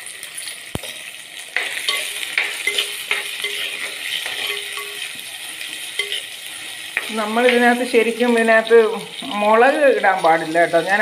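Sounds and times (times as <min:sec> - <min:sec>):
vegetables sizzling in hot oil: 0:00.0 - 0:11.0
spoon scraping and knocking pot: 0:01.6 - 0:05.3, 0:05.9 - 0:07.6.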